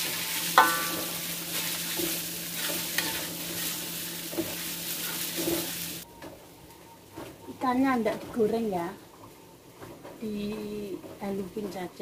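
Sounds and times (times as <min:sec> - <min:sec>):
spice paste sizzling in oil: 0:00.0 - 0:06.1
spatula clinking against pan: 0:00.6 - 0:01.2.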